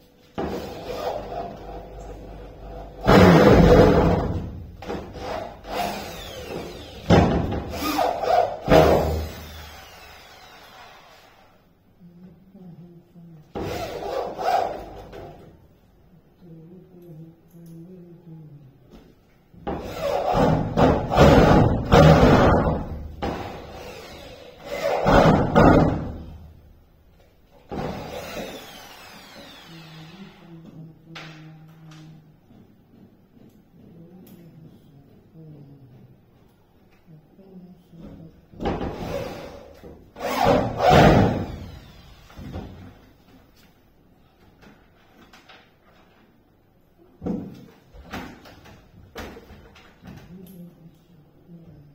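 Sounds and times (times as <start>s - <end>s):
electric drill drilling into wood: 5.2s - 7.1s, 7.7s - 11.5s, 23.4s - 25.1s, 27.8s - 30.5s, 40.2s - 42.5s.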